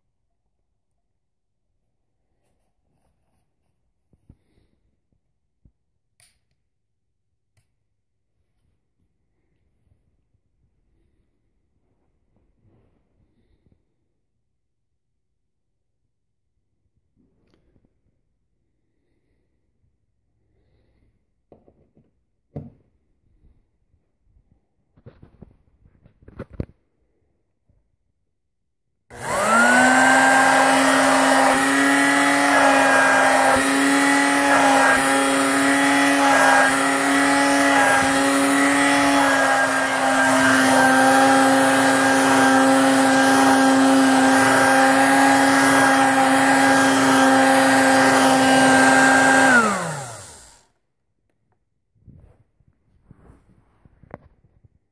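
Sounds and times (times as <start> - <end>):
hand vacuum motor whining: 29.1 - 50.6.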